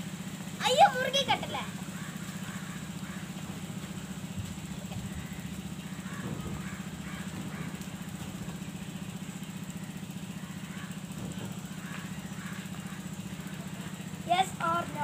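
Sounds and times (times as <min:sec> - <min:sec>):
motor humming with fast pulse: 0:00.0 - 0:15.0.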